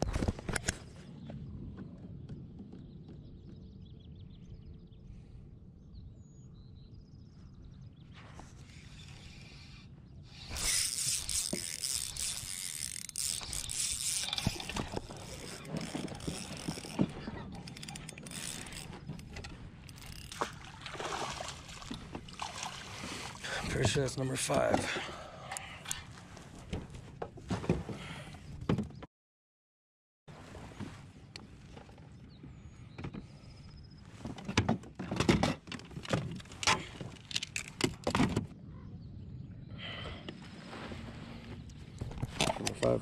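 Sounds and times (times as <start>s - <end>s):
fishing gear clicks and knocks: 10.4s - 20.8s, 34.2s - 38.5s, 41.7s - 43.0s
fish splashing at the surface: 20.4s - 23.4s.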